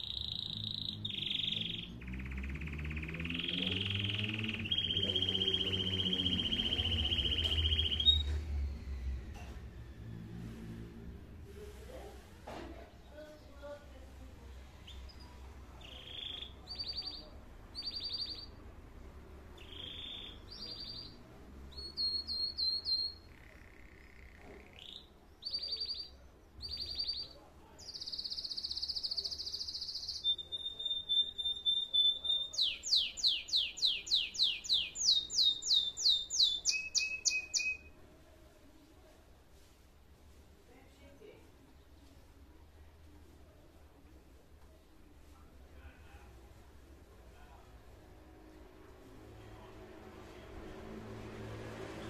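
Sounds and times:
canary singing: 0.0 - 9.3, 14.8 - 18.7, 19.5 - 38.0.

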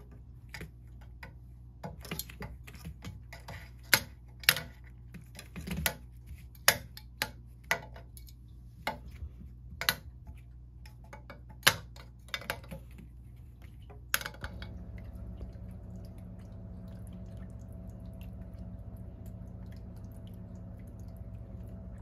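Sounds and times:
water fountain pump hum: 0.0 - 22.0
water trickling: 14.6 - 22.0.

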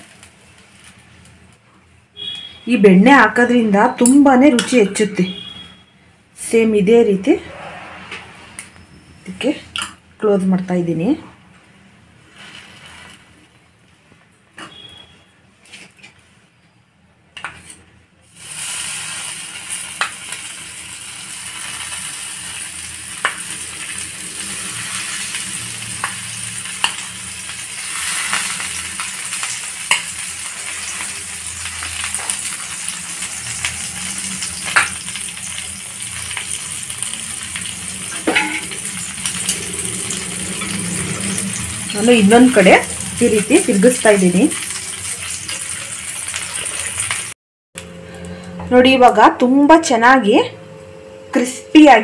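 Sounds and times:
butter sizzling with pops: 18.3 - 41.9.

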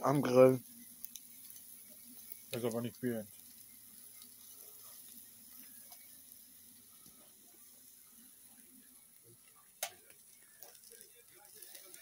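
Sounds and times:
meat sizzling on a grill: 0.0 - 12.0
small ticks: 0.7 - 6.3.

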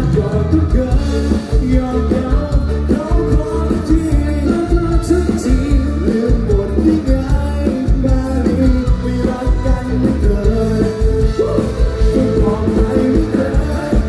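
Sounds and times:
drum kit and bass: 0.0 - 14.0
man singing into microphone: 0.0 - 14.0.

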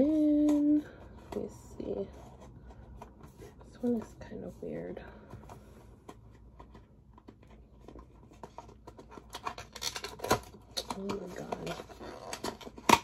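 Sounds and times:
packaging scratching and clicking: 6.1 - 13.0.

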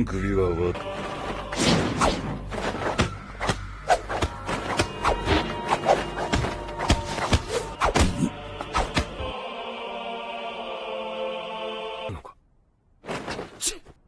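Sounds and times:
background music tones: 0.0 - 12.3
punch and kick impacts: 6.3 - 9.2.

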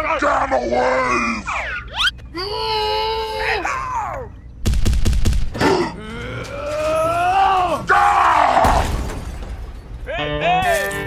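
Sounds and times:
groaning cartoon voice: 5.6 - 7.7.

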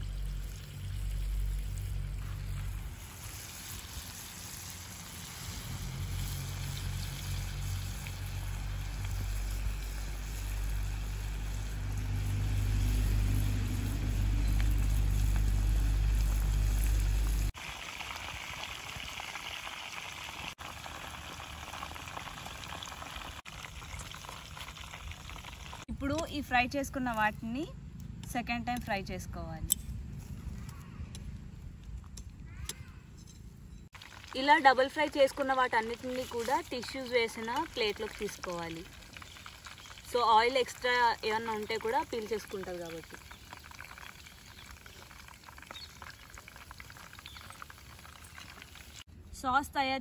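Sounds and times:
chicken deep-frying in oil: 0.0 - 26.0, 33.9 - 49.1
low rumble: 7.6 - 17.5.

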